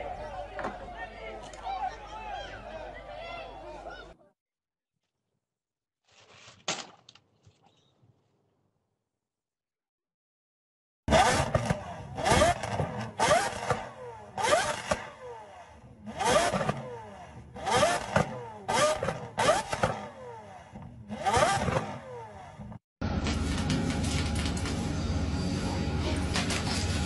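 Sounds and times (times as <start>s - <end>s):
car engine revving: 11.1s - 22.8s.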